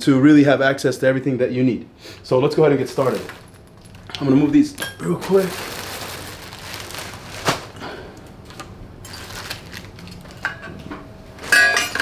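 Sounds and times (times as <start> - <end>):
packaging rustling: 2.8 - 7.8, 8.4 - 10.5.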